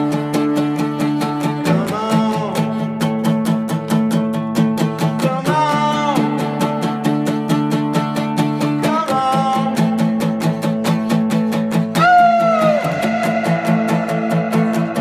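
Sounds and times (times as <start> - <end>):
person singing: 0.0 - 3.1, 5.0 - 6.9, 8.4 - 15.0
acoustic guitar strumming: 0.0 - 15.0.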